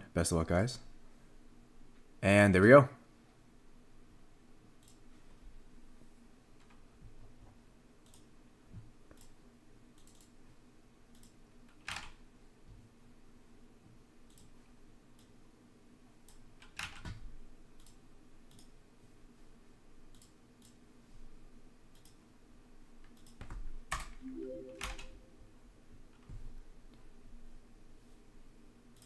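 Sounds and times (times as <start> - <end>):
computer keyboard typing: 11.2 - 12.1
rising chime alert: 24.2 - 25.5.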